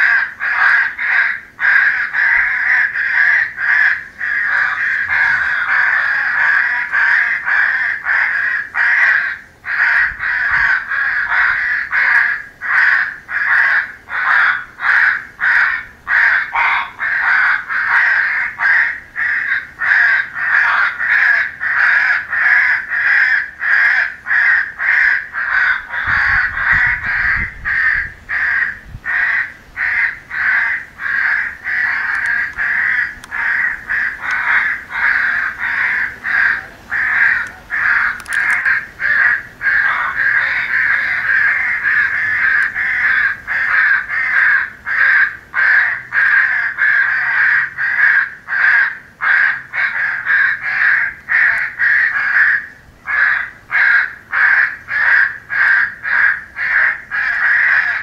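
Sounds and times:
crows cawing: 0:00.0 - 0:58.0.

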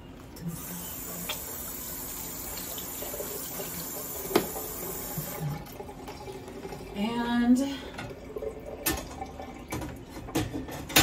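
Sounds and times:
faucet running into sink: 0:00.5 - 0:07.3, 0:07.9 - 0:10.0.

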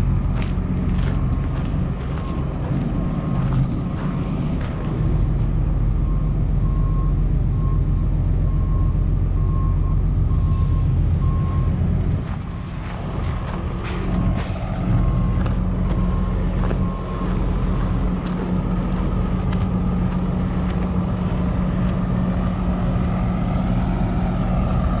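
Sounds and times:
diesel truck engine idling: 0:00.0 - 0:25.0.

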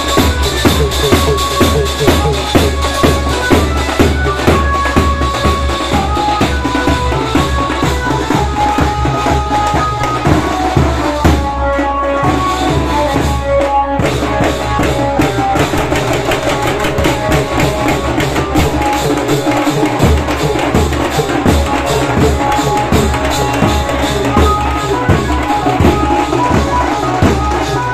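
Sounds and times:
bass drum: 0:00.0 - 0:06.1
drums playing fast rhythm: 0:00.0 - 0:27.9.

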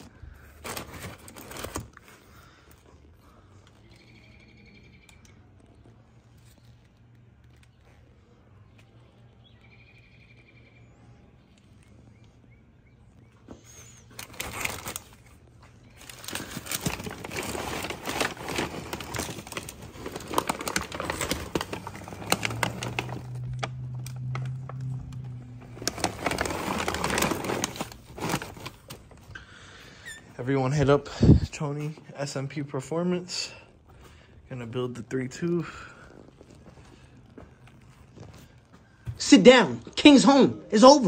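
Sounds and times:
packaging rustling and crinkling: 0:00.0 - 0:03.9, 0:13.8 - 0:30.1, 0:33.9 - 0:39.0.

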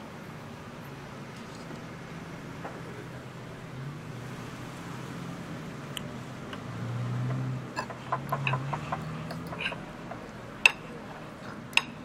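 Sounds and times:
low engine hum: 0:00.1 - 0:12.0
dishware clinking: 0:07.8 - 0:09.9.

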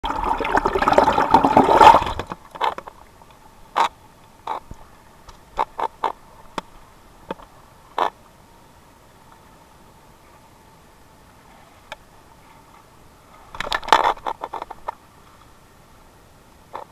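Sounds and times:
river water rushing underwater: 0:00.0 - 0:03.3.

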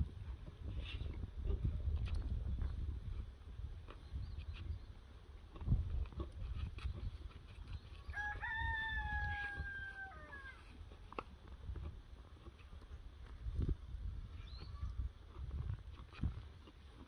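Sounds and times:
rooster crowing: 0:08.1 - 0:10.6.

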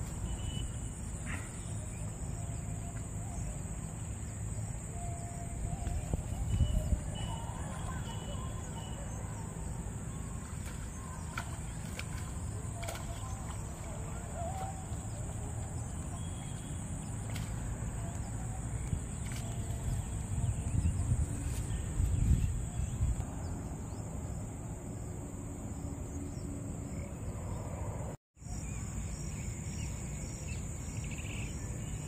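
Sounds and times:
insect drone: 0:00.0 - 0:32.0
wind on microphone: 0:04.7 - 0:08.8, 0:17.3 - 0:23.6.

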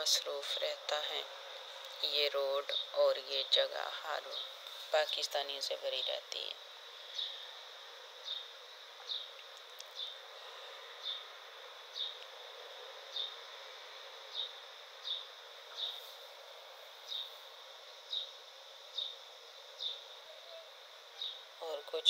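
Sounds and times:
faint steady hiss: 0:00.0 - 0:22.0
small bird chirping: 0:08.2 - 0:10.2, 0:11.0 - 0:11.3, 0:11.9 - 0:12.4, 0:13.1 - 0:13.4, 0:14.3 - 0:16.1, 0:17.0 - 0:17.4, 0:18.0 - 0:22.0.

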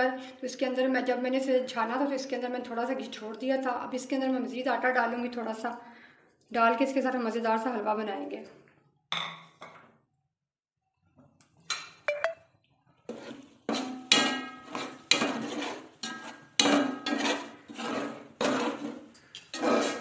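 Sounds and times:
metal spoon scraping metal pot: 0:13.0 - 0:20.0.

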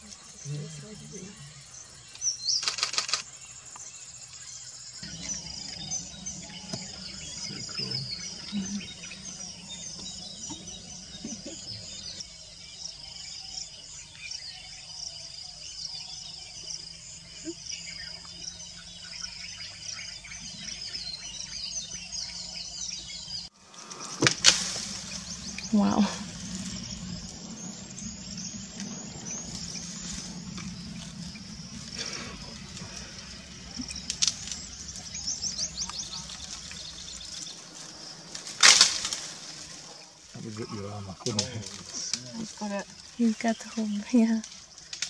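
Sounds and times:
birds chirping: 0:00.0 - 0:45.0
insects: 0:00.0 - 0:45.0
sharp clicks: 0:02.6 - 0:03.3
low steady hum: 0:05.0 - 0:12.8, 0:24.2 - 0:39.7.

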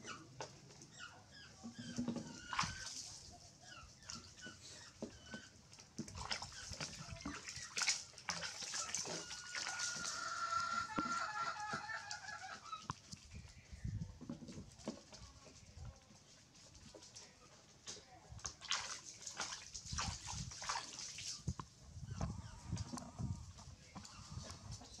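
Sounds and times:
wet rubbing and splashing: 0:02.0 - 0:13.4, 0:18.4 - 0:21.7.

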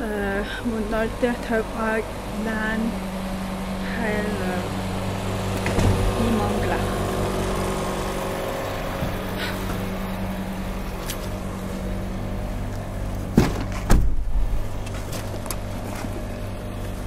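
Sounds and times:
low mechanical hum: 0:00.0 - 0:17.0
heavy thumps: 0:08.8 - 0:10.0, 0:13.2 - 0:15.4.

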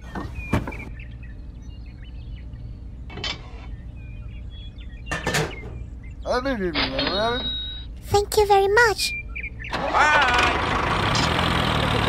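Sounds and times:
steady low hum: 0:00.0 - 0:08.1.

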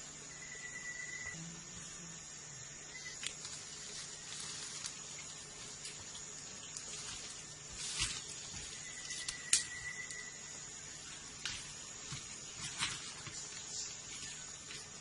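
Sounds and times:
high-pitched insect drone: 0:00.0 - 0:12.0
faint thin whistle: 0:08.8 - 0:10.4.

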